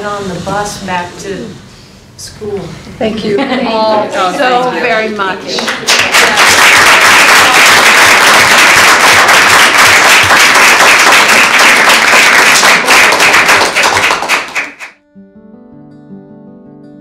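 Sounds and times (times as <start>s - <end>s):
people applauding: 5.5s - 15.0s.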